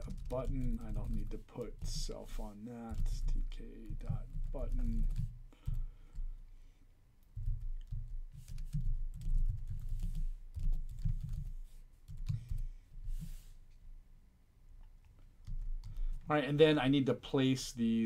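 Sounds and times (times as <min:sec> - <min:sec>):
typing on computer keyboard: 0:00.0 - 0:02.0, 0:07.3 - 0:11.5, 0:15.4 - 0:16.2.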